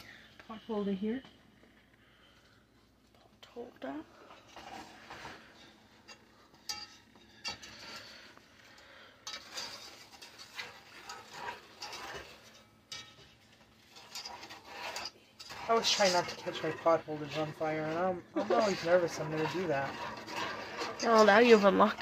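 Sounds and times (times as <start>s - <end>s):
whisk scraping and clinking pan: 4.5s - 22.0s.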